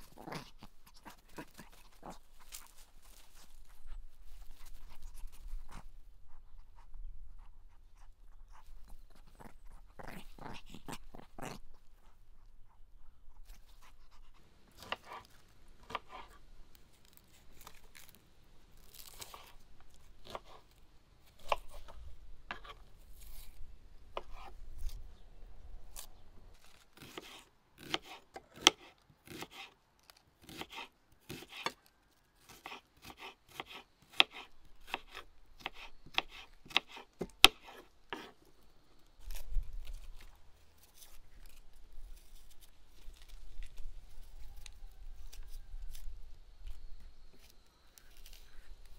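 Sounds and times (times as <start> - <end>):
onion crunching as peeled: 0.0 - 48.9
knife slicing on wooden board: 14.7 - 16.4, 20.2 - 20.7, 21.3 - 25.0, 26.7 - 29.8, 30.4 - 31.8, 32.5 - 38.4.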